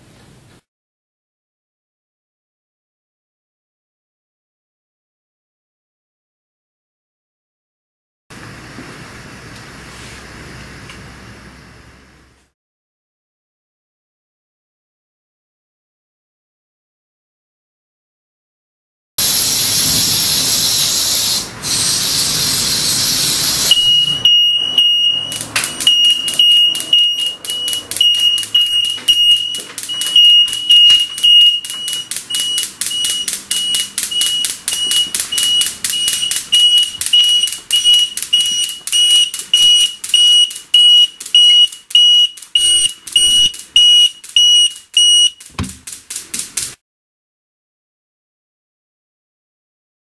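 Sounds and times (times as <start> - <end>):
aerosol spray hissing: 19.2 - 23.7
smoke alarm beeping: 19.2 - 45.6.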